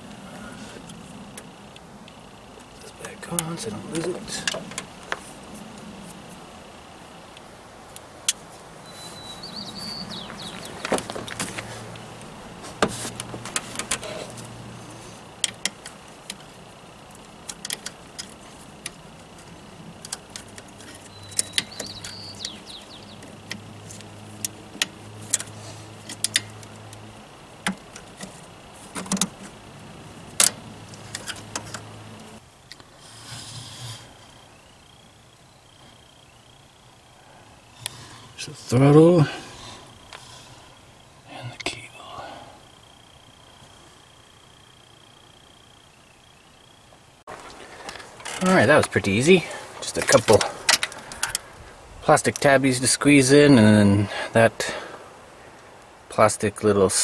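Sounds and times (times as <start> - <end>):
clicks and rattles of throttle cable: 0.8 - 5.8, 10.1 - 29.6, 30.2 - 32.9, 47.3 - 52.5.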